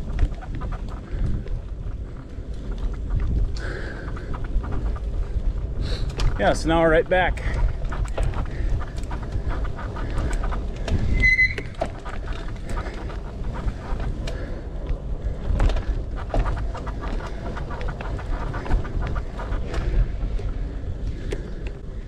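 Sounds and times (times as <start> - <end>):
bike knocks and rattles: 0.0 - 21.6
wind buffeting microphone: 0.0 - 22.0
high squeak: 11.1 - 11.8.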